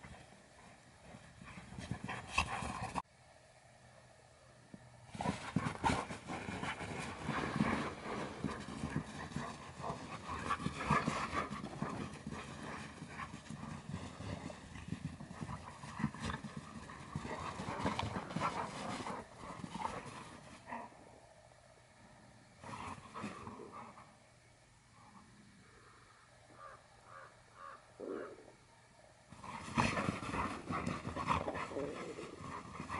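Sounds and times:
paws scuffling in snow: 5.2 - 20.7
dogs panting and grumbling: 5.2 - 21.0, 29.4 - 32.9.

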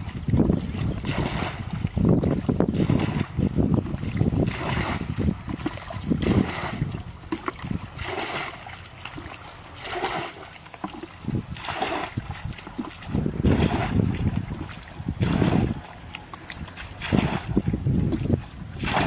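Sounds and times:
wind rumble on microphone: 0.0 - 8.4, 10.1 - 19.0
water pouring from bucket: 4.3 - 15.8, 16.6 - 19.0.

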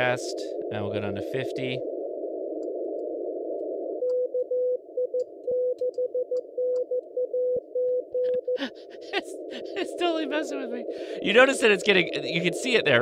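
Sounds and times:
radio hiss: 0.0 - 2.6, 8.6 - 13.0.

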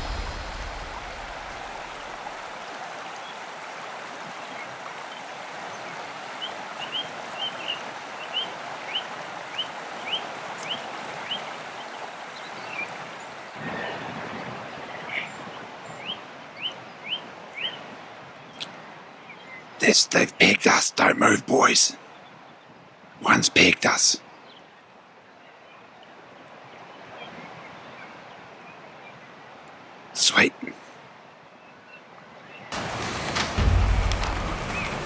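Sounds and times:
river rushing: 0.0 - 19.2, 32.3 - 35.0.

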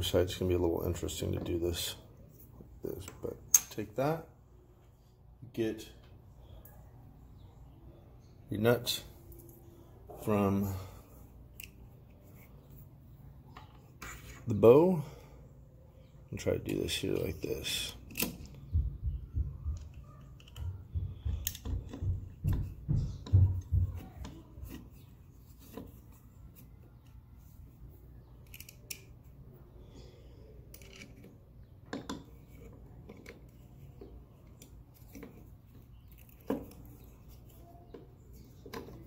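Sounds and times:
hex key clicking and scraping: 28.3 - 29.3, 30.6 - 39.0.

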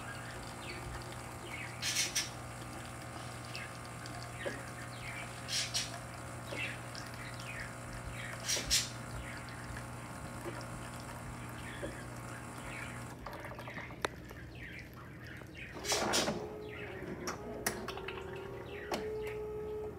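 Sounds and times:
espresso machine pump humming: 0.0 - 13.2, 15.8 - 19.9
coffee streaming into cup: 0.0 - 14.2.

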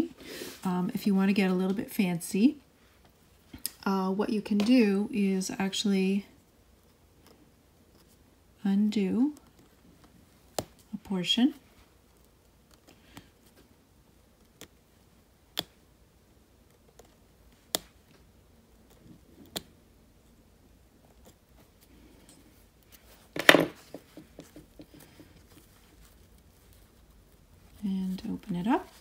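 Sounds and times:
stitches clicking as they give: 16.6 - 19.8.

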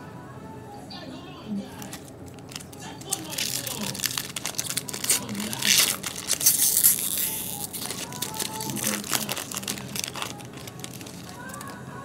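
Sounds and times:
foil wrapper tearing and crinkling: 1.8 - 11.8.

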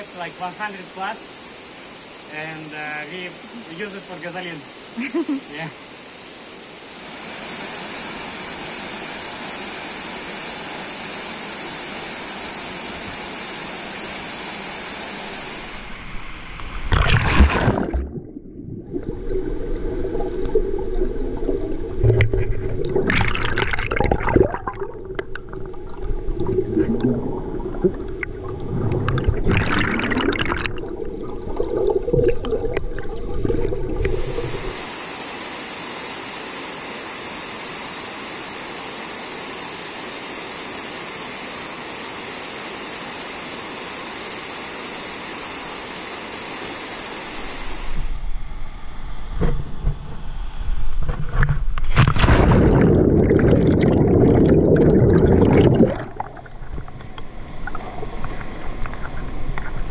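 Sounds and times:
underwater rumble of moving water: 15.6 - 34.8, 49.4 - 59.9
water splashes: 15.8 - 34.8, 51.4 - 59.9.

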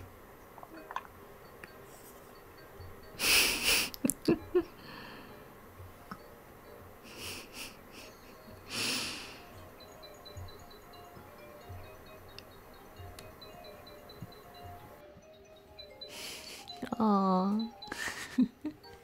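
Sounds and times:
breathy puffs of air: 7.1 - 9.5.

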